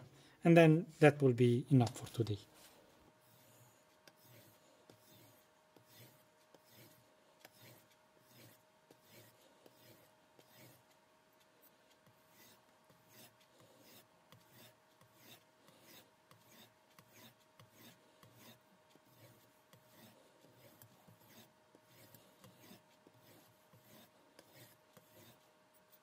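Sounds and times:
knife blade rubbing on strop: 3.3s - 10.8s, 12.3s - 25.4s.

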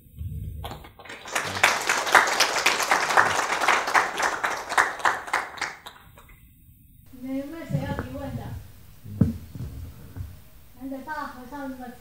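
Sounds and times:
audience applauding: 0.6s - 6.3s.

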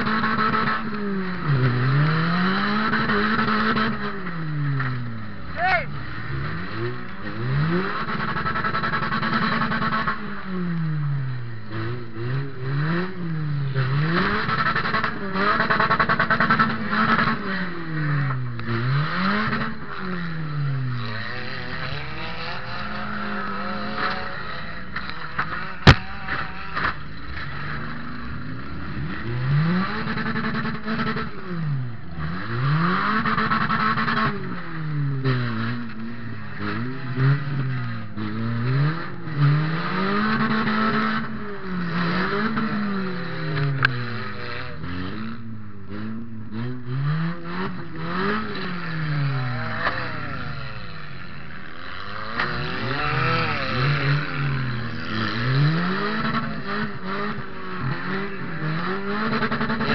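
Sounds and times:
car engine revving: 0.0s - 59.9s
sharp crack: 24.9s - 27.0s.

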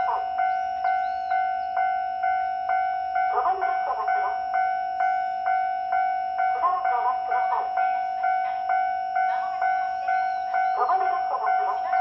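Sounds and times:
electronic warning bell ringing: 0.0s - 12.0s
held tone: 0.0s - 12.0s.

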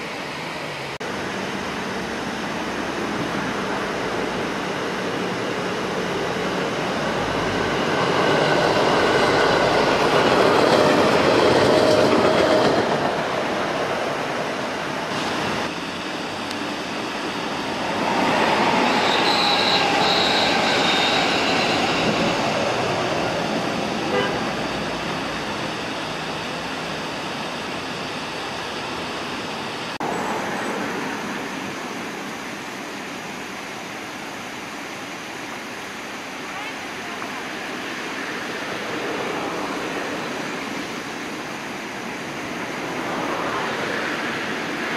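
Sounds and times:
train wheels on rails: 2.3s - 31.8s
short high tones: 18.3s - 23.2s.

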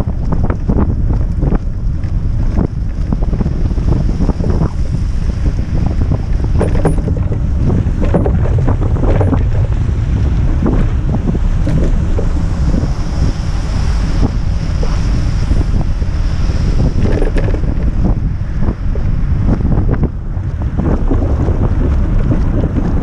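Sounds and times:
wind buffeting microphone: 0.0s - 23.0s
knocks and bumps: 5.6s - 13.1s, 16.9s - 20.2s.

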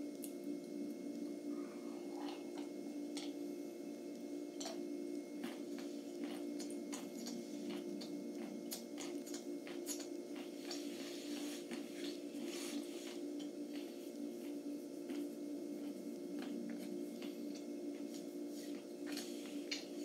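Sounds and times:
steady low hum: 0.0s - 20.0s
person chewing crunchy food: 4.6s - 14.0s, 15.1s - 20.0s.

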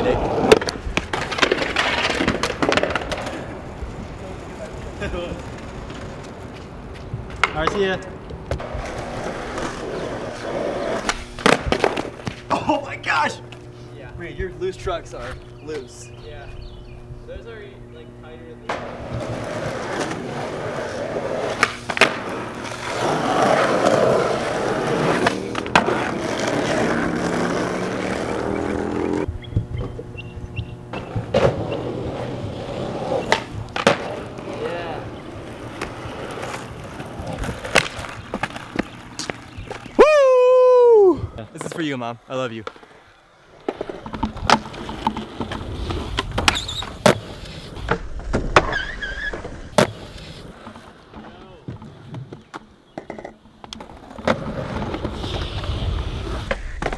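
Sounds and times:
skateboard wheels rolling on asphalt: 0.0s - 13.6s, 18.6s - 56.9s
skateboard clacking: 0.1s - 3.8s, 7.3s - 9.7s, 33.2s - 40.0s, 43.6s - 49.0s
skateboard pops and landings: 11.0s - 12.5s, 21.4s - 24.0s, 30.9s - 31.9s, 33.2s - 34.4s, 43.6s - 50.3s
high squeals: 48.7s - 49.5s.

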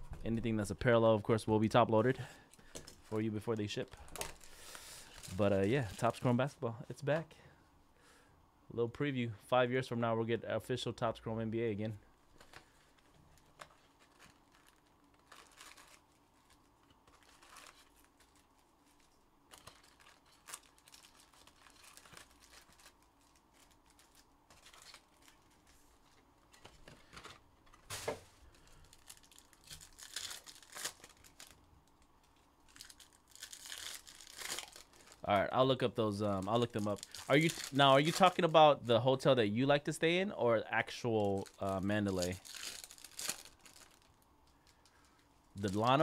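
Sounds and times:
packaging tearing and crinkling: 4.0s - 6.2s, 12.4s - 25.8s, 27.7s - 35.4s, 36.2s - 38.6s, 41.2s - 44.8s.

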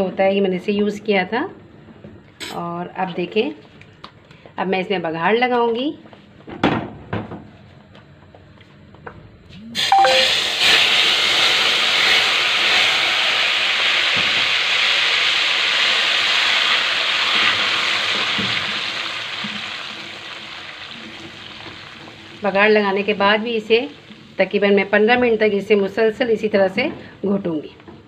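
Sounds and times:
hot oil sizzling: 9.8s - 25.0s.

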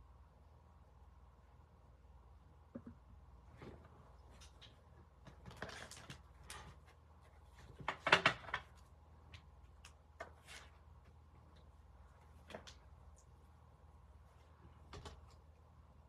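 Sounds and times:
objects clicking and knocking on desk: 7.6s - 8.8s.

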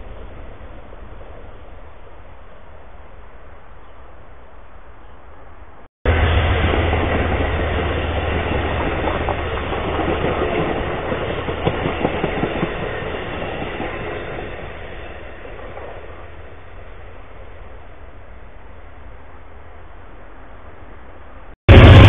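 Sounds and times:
diesel locomotive engine hum: 0.0s - 22.0s
train wheels clattering on rails: 6.1s - 16.6s.

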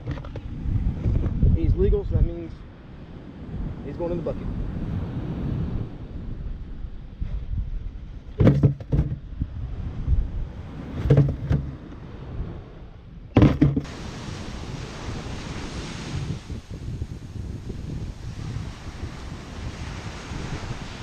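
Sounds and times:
knocking and rustling on microphone: 0.0s - 1.4s, 8.3s - 9.4s, 10.9s - 11.8s, 13.3s - 13.9s
wind buffeting microphone: 0.0s - 21.0s
breaking surf: 13.3s - 21.0s.

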